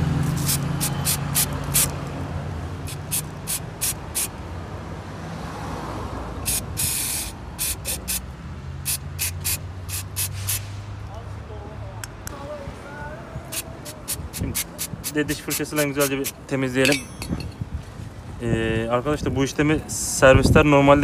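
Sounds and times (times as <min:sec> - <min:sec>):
aerosol spray hissing: 0:00.3 - 0:02.0, 0:02.9 - 0:04.4, 0:06.5 - 0:08.2, 0:08.8 - 0:10.7, 0:13.5 - 0:16.4.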